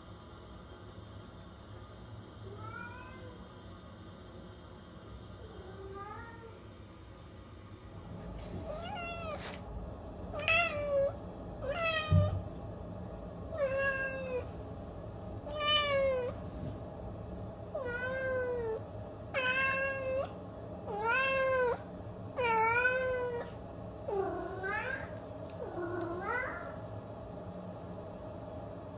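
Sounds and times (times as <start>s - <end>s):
cat meowing: 8.7s - 9.4s, 13.6s - 14.5s.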